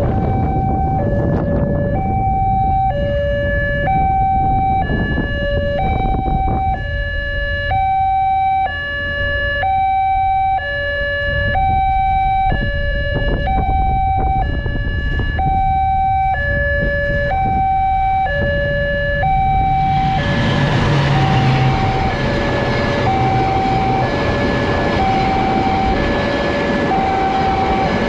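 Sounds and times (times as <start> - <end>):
two-tone crossing alarm: 0.0 - 28.0
low rumble: 11.3 - 28.0.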